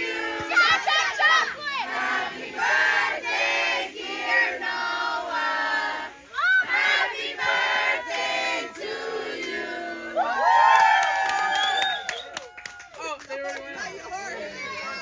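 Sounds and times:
group singing a celebration song: 0.0 - 11.0.

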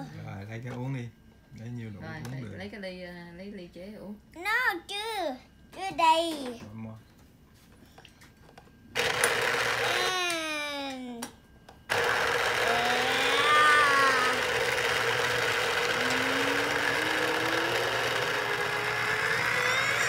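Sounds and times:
electric juicer motor whining: 9.0 - 10.4, 11.9 - 20.0.

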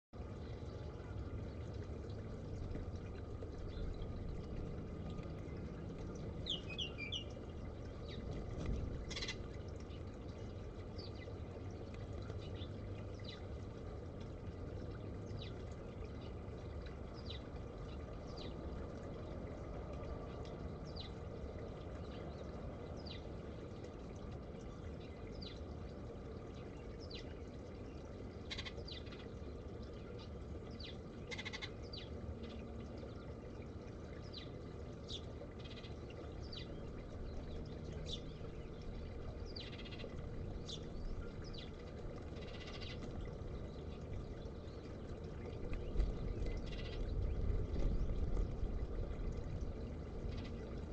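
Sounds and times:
fountain trickling: 0.2 - 50.9
small birds chirping: 3.4 - 10.2, 34.2 - 48.6.

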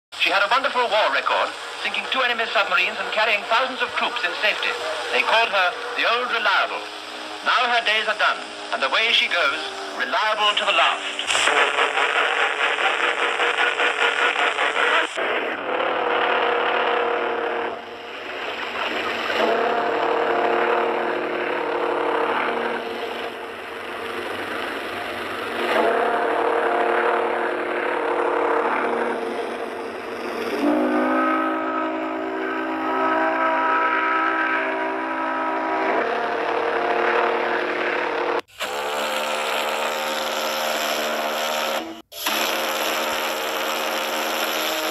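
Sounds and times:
steady hiss: 0.2 - 15.2
steam whistle blasts: 1.2 - 44.9.

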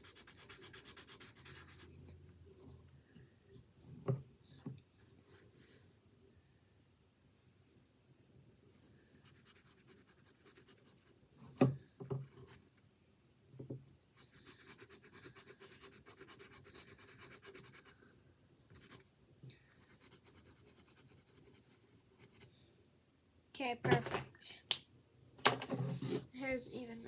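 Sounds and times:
pencil rubbing on canvas: 0.0 - 2.8, 9.2 - 11.1, 14.2 - 18.1, 19.8 - 22.5.

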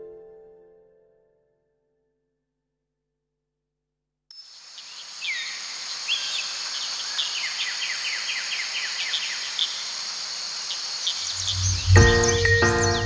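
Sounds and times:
insect-like hiss: 4.3 - 13.0
birds chirping: 4.8 - 13.0
bird trill: 11.2 - 13.0.

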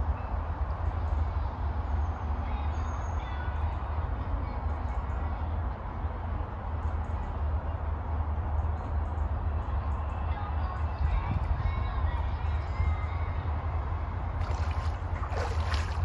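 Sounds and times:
wind on microphone: 10.9 - 16.0.

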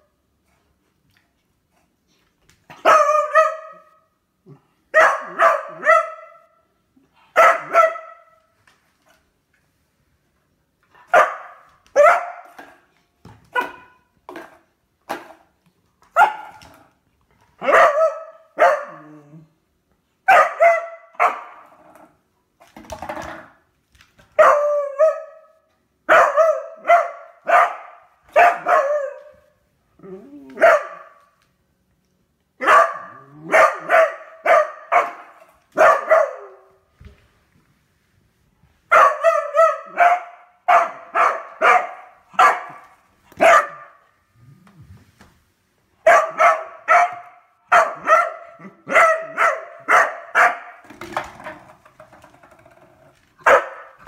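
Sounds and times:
dog barking: 2.7 - 4.0, 4.9 - 6.5, 7.4 - 8.4, 11.1 - 12.6, 13.5 - 14.1, 16.2 - 16.6, 17.6 - 19.1, 20.3 - 21.6, 24.4 - 25.5, 26.1 - 29.3, 30.6 - 31.2, 32.6 - 36.8, 38.9 - 44.0, 46.0 - 50.8, 53.4 - 54.0.

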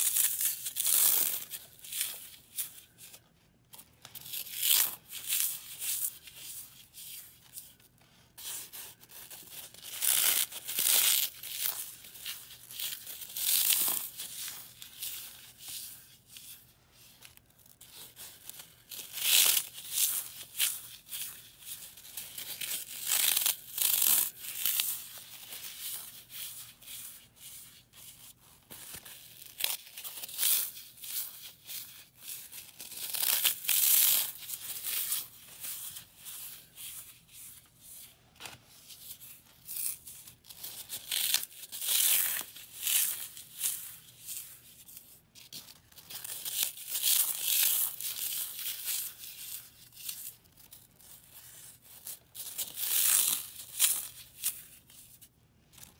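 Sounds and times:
floral foam crunching and crackling: 32.4 - 35.7.

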